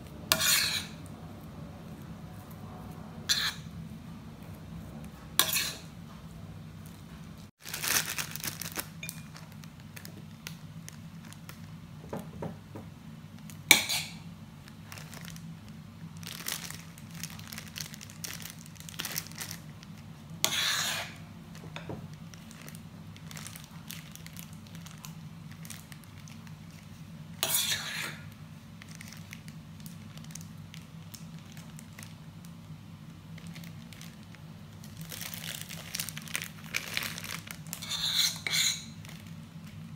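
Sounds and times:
low steady hum: 0.0s - 39.9s
metal spoon scraping a bowl: 0.3s - 1.1s, 3.3s - 3.7s, 5.3s - 5.9s, 20.4s - 21.2s, 27.4s - 28.2s, 37.8s - 39.0s
plastic bag crinkling: 7.5s - 11.8s, 14.6s - 20.1s, 21.5s - 27.0s, 28.8s - 32.2s, 33.3s - 37.8s, 38.9s - 39.9s.

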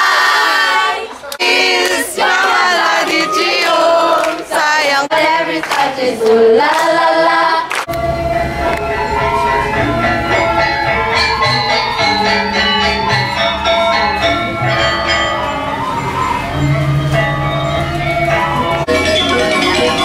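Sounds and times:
girls singing together: 0.0s - 7.9s
hands clapping: 3.1s - 4.5s, 5.6s - 7.0s, 7.7s - 8.0s, 8.7s - 8.9s
dance music with metal percussion: 7.8s - 20.0s.

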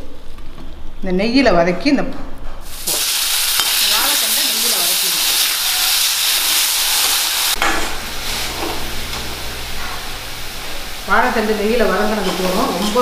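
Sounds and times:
food sizzling in hot oil: 2.6s - 13.0s.

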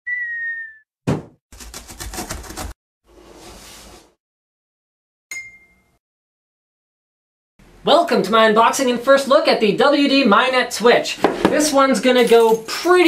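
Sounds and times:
falling tone: 0.1s - 0.8s
sharp thump: 1.1s - 1.4s
bright ringing ping: 5.3s - 6.0s.

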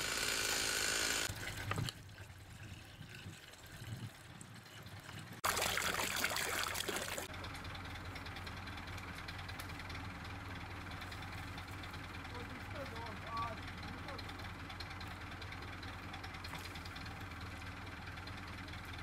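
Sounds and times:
chainsaw running: 0.0s - 1.4s
water pouring into metal pot: 5.4s - 7.3s.

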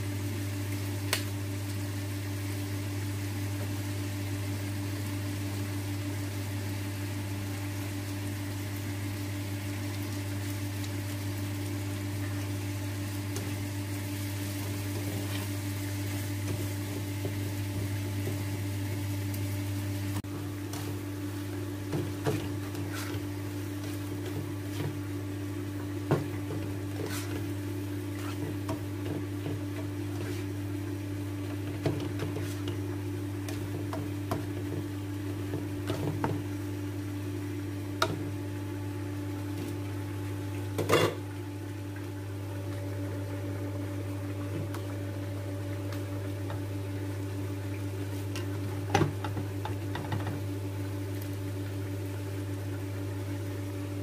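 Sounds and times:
spatula scraping a frying pan: 22.4s - 25.0s, 26.9s - 28.8s, 30.1s - 30.6s, 32.1s - 32.8s.

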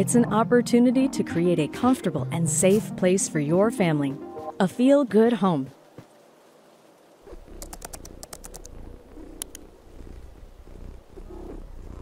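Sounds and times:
cat purring: 7.2s - 12.0s
sharp clicks: 7.4s - 9.7s.

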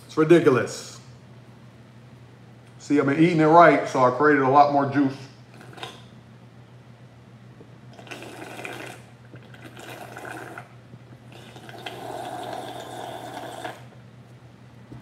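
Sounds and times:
person slurping juice: 5.5s - 6.1s, 7.9s - 13.9s.

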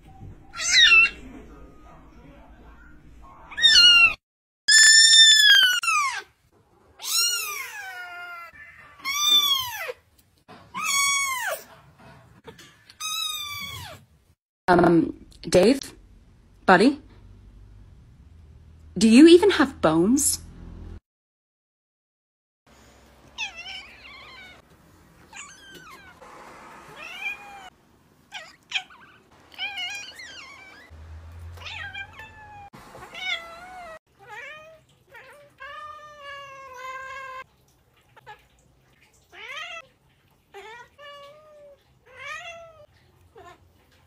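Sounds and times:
cat meowing: 0.6s - 1.2s, 7.0s - 10.0s, 23.4s - 24.6s, 25.3s - 26.2s, 27.0s - 27.7s, 28.3s - 30.9s, 31.6s - 37.4s.

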